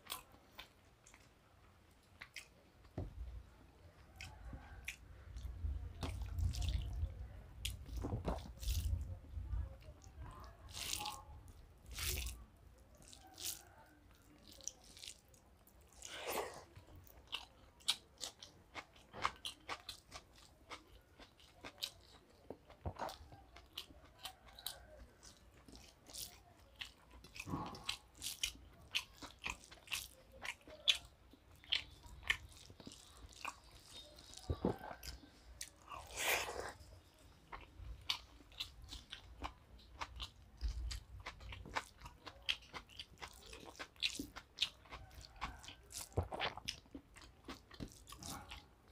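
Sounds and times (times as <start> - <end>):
person chewing with lip smacks: 15.9 - 36.9, 37.5 - 48.9.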